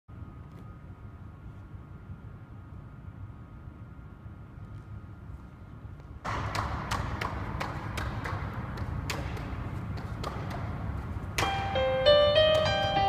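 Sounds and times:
juggling clubs slapping into hands: 6.2 - 11.6
piano music: 11.4 - 13.0.

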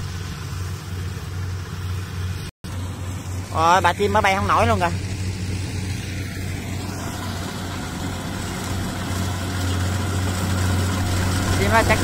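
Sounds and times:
combine harvester engine running: 0.0 - 12.0.

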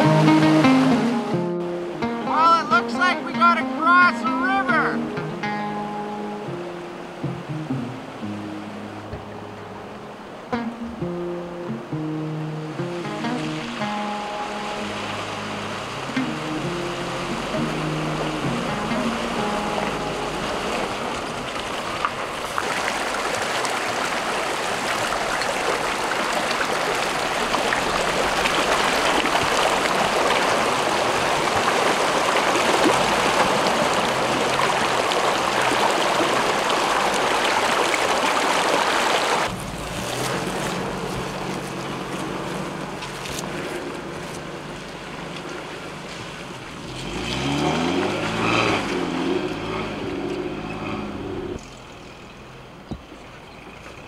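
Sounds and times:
creek water rushing: 0.0 - 54.0
pickup engine revving: 14.8 - 24.8, 39.5 - 52.0.

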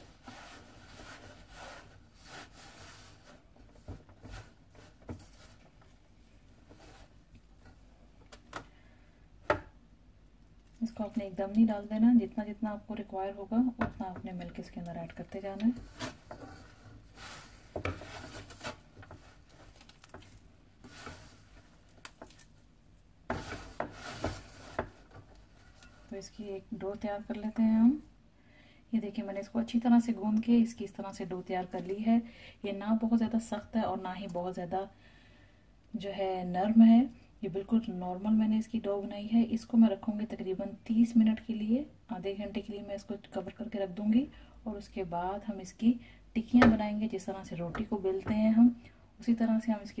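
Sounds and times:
dough rubbing in steel bowl: 0.0 - 3.6, 23.3 - 27.8
hand kneading dough in bowl: 13.6 - 28.1.

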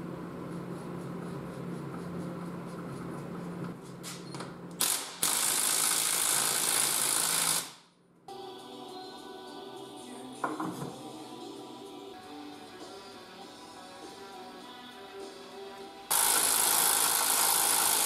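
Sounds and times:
steady low hum: 0.0 - 5.2
impact wrench running: 4.8 - 7.9, 16.1 - 18.0.

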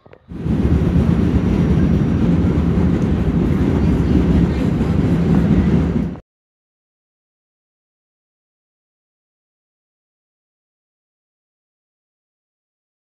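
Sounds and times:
subway train rumbling past: 0.0 - 6.2.

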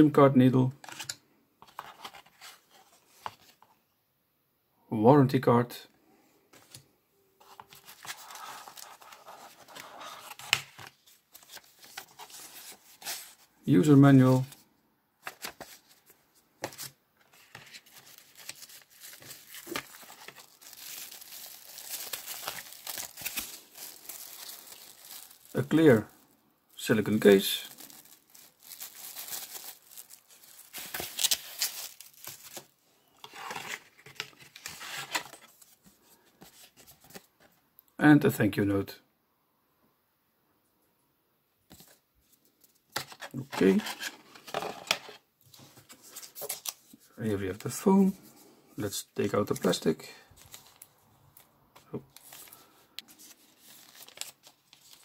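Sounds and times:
paper and cardboard rustling: 0.8 - 3.7, 7.4 - 13.5, 15.2 - 26.0, 26.8 - 37.5, 42.7 - 48.4, 49.4 - 50.9, 51.8 - 55.0
plastic wrapping crinkling: 16.7 - 32.8, 49.6 - 55.0.

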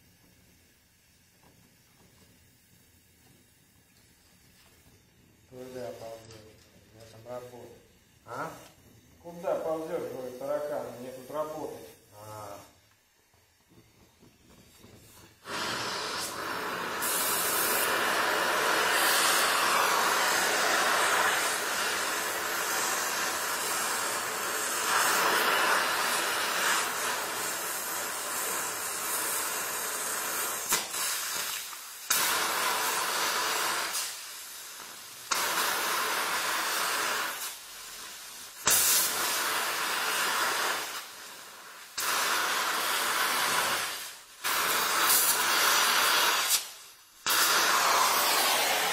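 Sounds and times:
welding torch flame hissing: 0.0 - 48.9.

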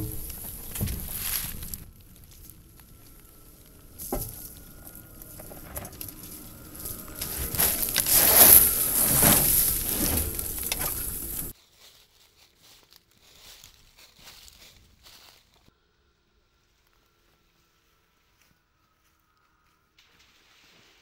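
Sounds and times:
leaves rustling: 0.0 - 15.7
tyres crunching over dry leaves: 0.0 - 15.7.

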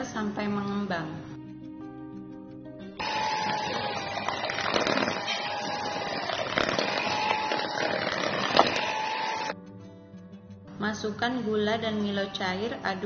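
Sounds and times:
electric hand mixer whining: 3.0 - 9.6.

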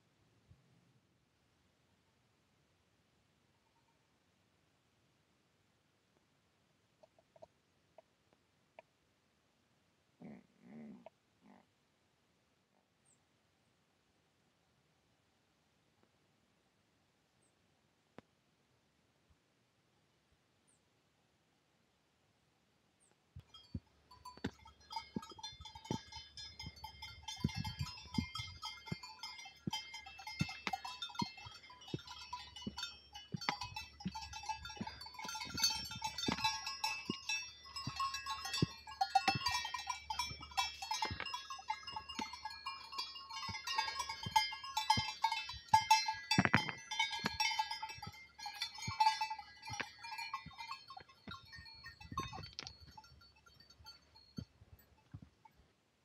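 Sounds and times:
hooves clicking on stones: 23.4 - 55.6
goat bells clinking: 23.4 - 55.7.

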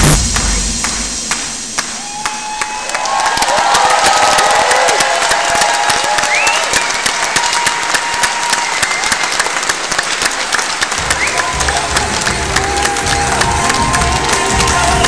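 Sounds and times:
music with strong bass: 0.0 - 1.9, 11.0 - 15.0
audience applauding: 0.8 - 15.0
whoops: 1.8 - 9.6, 11.0 - 15.0.

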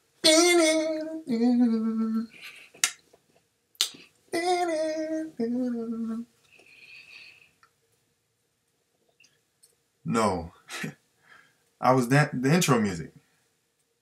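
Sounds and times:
man singing jingle: 0.2 - 2.3, 4.3 - 6.2
finger snaps: 2.8 - 3.0, 3.8 - 4.1.

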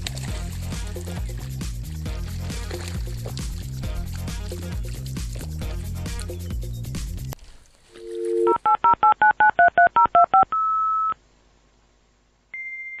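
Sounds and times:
two-tone dial tone: 7.9 - 11.2
keypad dialing beeps: 8.0 - 11.2
long single beep: 12.6 - 13.0.

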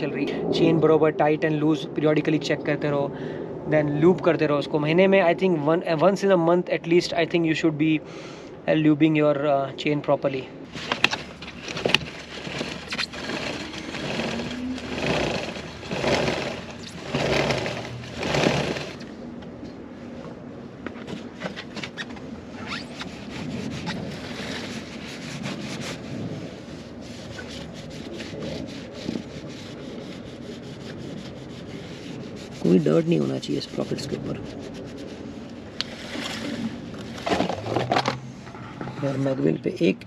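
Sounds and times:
cloth rubbing on drive chain: 10.7 - 19.1, 21.1 - 37.6.

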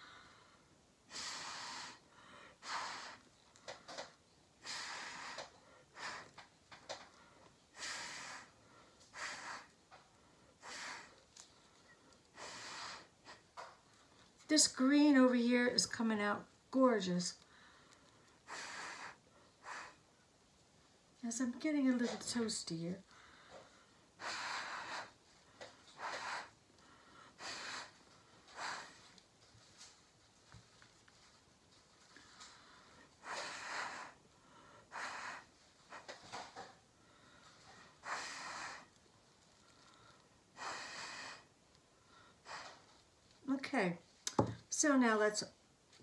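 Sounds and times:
breath puffs through a straw: 1.1 - 3.3, 4.6 - 6.5, 7.7 - 9.8, 12.3 - 13.7, 18.4 - 20.0, 23.5 - 26.6, 27.3 - 29.2, 33.2 - 34.2, 34.8 - 36.7, 37.5 - 39.0, 40.5 - 41.5, 42.4 - 42.8.

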